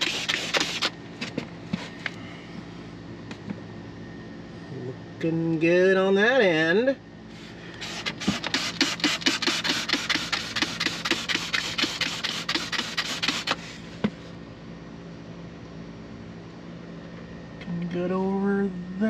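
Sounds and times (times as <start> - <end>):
spray bottle spraying: 0.0 - 0.9, 7.8 - 13.6.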